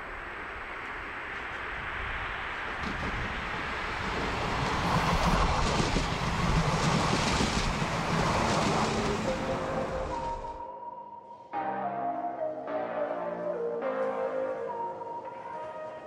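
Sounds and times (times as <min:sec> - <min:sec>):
train passing rumble: 0:00.0 - 0:10.6.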